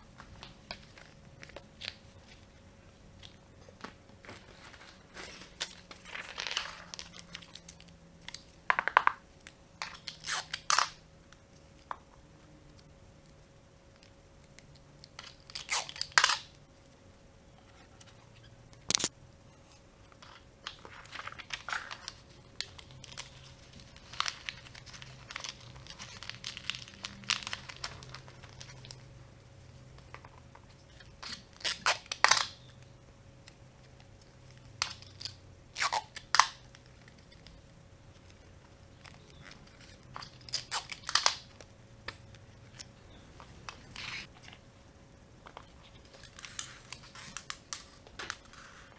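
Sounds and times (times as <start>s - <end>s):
paper tubes rustling and crinkling: 3.2s - 7.8s
sticky tape pulled and torn: 9.8s - 11.0s, 15.0s - 16.5s, 18.8s - 19.1s, 31.0s - 32.6s, 34.8s - 37.5s, 39.4s - 41.6s.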